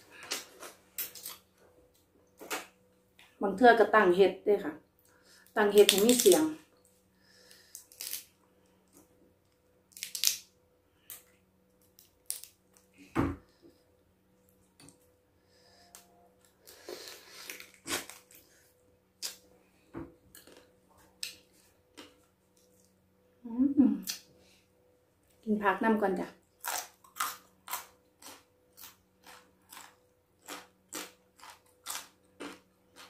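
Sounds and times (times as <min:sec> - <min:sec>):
crab shell cracking: 0:07.5 - 0:08.3, 0:09.9 - 0:10.5, 0:11.8 - 0:12.6.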